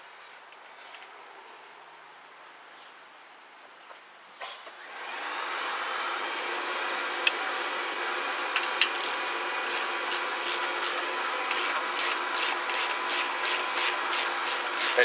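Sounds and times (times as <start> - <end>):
hand ratchet clicking: 8.8 - 15.0.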